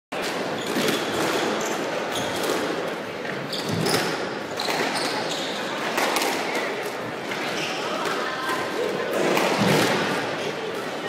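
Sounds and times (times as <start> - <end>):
sneakers squeaking on wooden floor: 0.5 - 5.9, 7.2 - 8.4.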